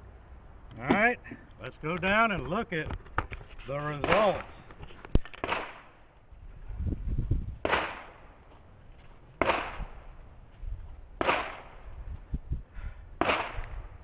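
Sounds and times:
echoing gunshots: 5.4 - 6.0, 7.6 - 8.3, 9.4 - 10.0, 11.2 - 11.8, 13.2 - 13.8.

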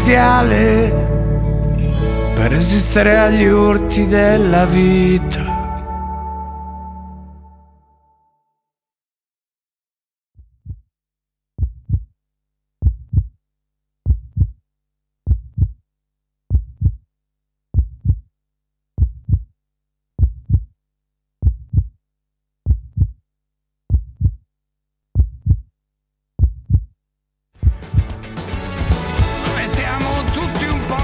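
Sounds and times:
heartbeat lub-dub thumps: 10.4 - 10.9, 11.6 - 12.1, 12.8 - 13.3, 14.0 - 14.6, 15.3 - 15.8, 16.5 - 17.0, 17.7 - 18.2, 19.0 - 19.5, 20.2 - 20.7, 21.4 - 22.0, 22.6 - 23.2, 23.9 - 24.4, 25.2 - 25.7, 26.4 - 26.9, 27.6 - 28.2, 28.8 - 29.5.

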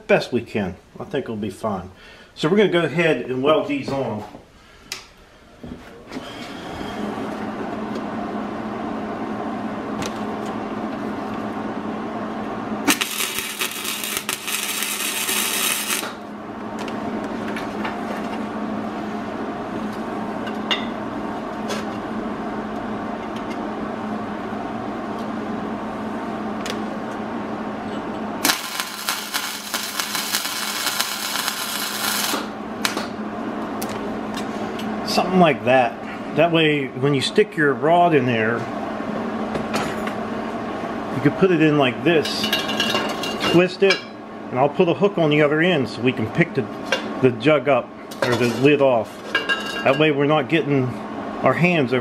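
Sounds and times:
steady hum: 0.0 - 52.0
arc welding crackling: 12.8 - 16.3, 28.4 - 33.2.

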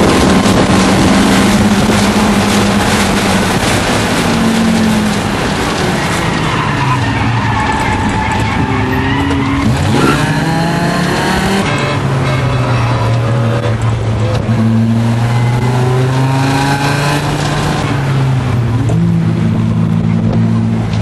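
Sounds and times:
race car engine from inside cabin: 0.0 - 6.4, 8.0 - 21.0
tyres squealing: 5.4 - 13.9.

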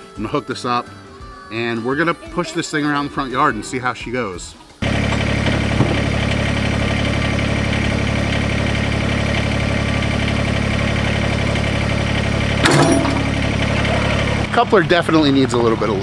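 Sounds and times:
diesel tractor idling: 4.8 - 16.0
sharp metal clank: 12.6 - 13.6.

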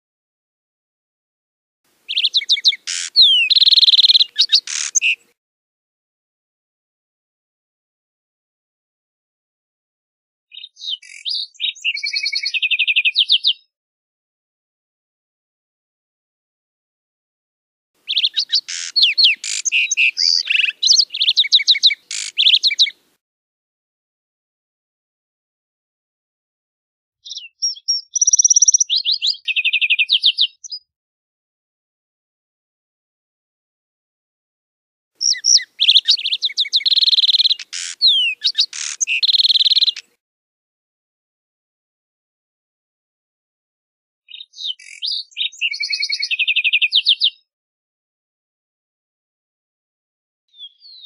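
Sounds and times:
sparrow singing: 2.1 - 5.3, 10.5 - 13.7, 18.0 - 23.0, 27.2 - 30.9, 35.2 - 40.1, 44.3 - 47.5, 50.5 - 51.0.

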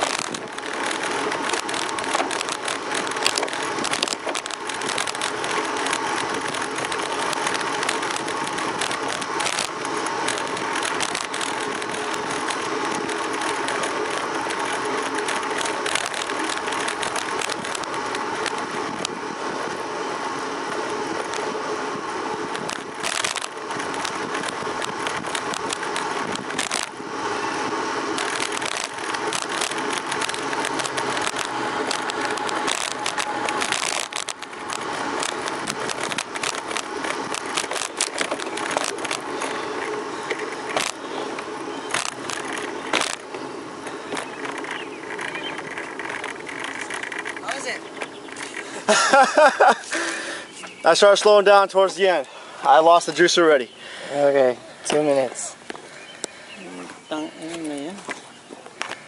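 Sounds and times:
camera mount rattling: 0.0 - 19.1, 22.5 - 27.0, 28.1 - 49.7
wind and road noise: 0.0 - 59.0.

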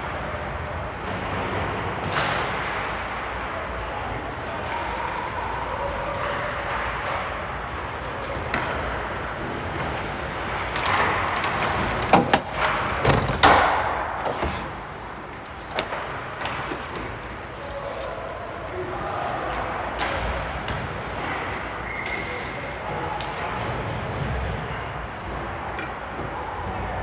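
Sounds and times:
arena noise: 0.0 - 27.0
sticks and puck clacking: 4.2 - 27.0
skates scraping ice: 5.8 - 18.8, 19.4 - 27.0.

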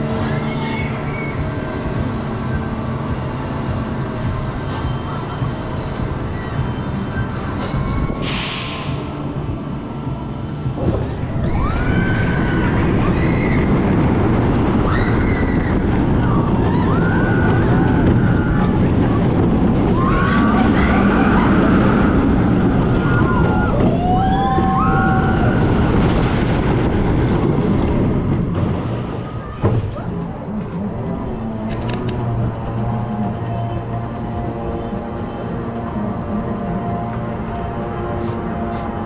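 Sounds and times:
roller coaster rumbling: 0.0 - 39.0
riders screaming: 19.8 - 26.0.

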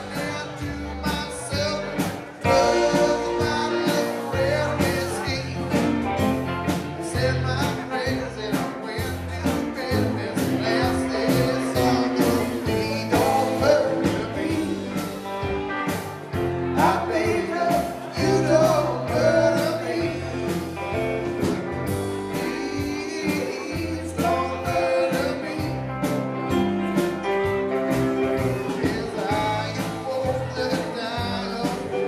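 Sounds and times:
sung vocals: 0.0 - 6.1, 7.0 - 15.3, 16.7 - 21.0, 22.0 - 26.2, 28.6 - 32.0
rock band playing: 0.0 - 32.0
steady drum beat: 0.0 - 32.0.

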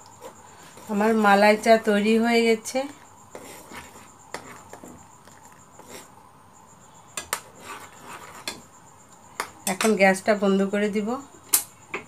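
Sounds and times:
spoon scraping metal saucepan: 3.3 - 6.1, 7.2 - 8.6.

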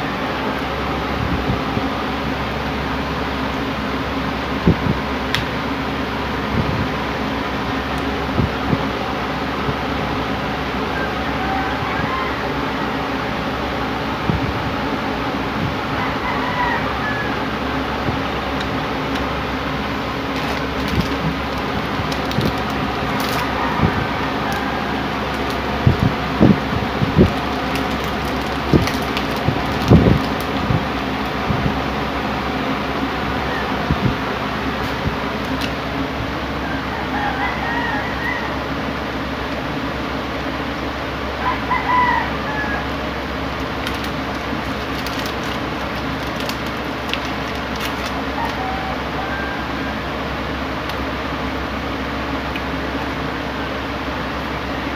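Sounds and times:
electric fan running: 0.0 - 54.9
steady background hum: 0.0 - 54.9
rooster crowing: 10.8 - 14.4, 15.6 - 18.6, 22.3 - 27.7, 33.3 - 34.6, 36.3 - 39.2, 41.3 - 43.2, 48.2 - 50.7
snack wrapper crinkling: 20.2 - 23.6, 25.2 - 26.3, 27.2 - 31.3, 43.6 - 48.6.

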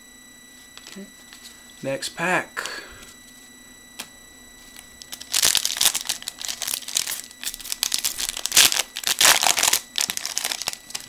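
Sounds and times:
foil wrapper crinkling and tearing: 4.7 - 11.0.

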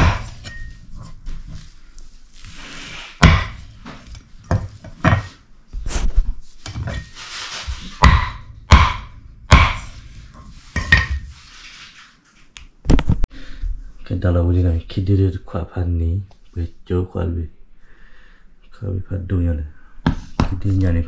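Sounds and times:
heavy chopping blows on wood: 0.0 - 0.5, 3.2 - 4.0, 7.8 - 10.0.

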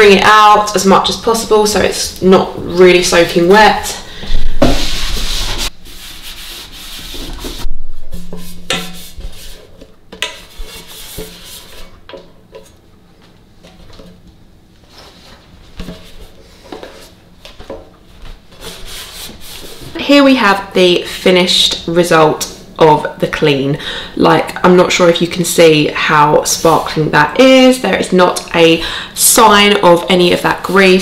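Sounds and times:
damp cloth wiping plastic: 4.3 - 7.7.

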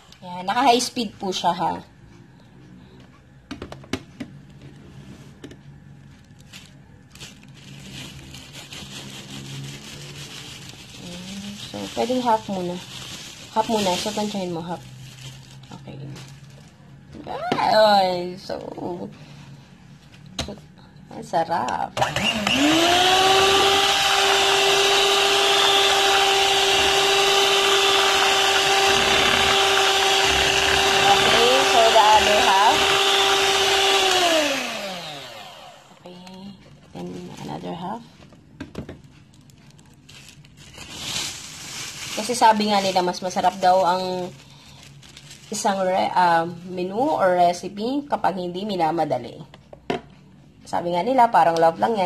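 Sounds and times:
plastic bag crinkling: 6.0 - 16.9, 39.0 - 46.2
electric hand mixer whine: 22.0 - 36.0.

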